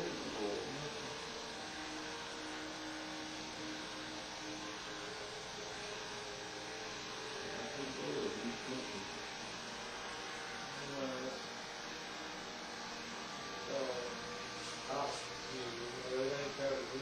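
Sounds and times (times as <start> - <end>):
steady hum: 0.0 - 17.0
hiss: 14.6 - 16.6.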